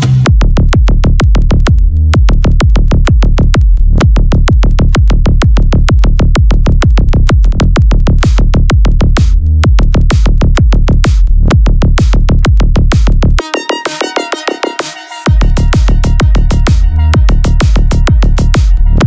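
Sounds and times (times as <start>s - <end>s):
electronic dance music: 6.4s - 19.0s.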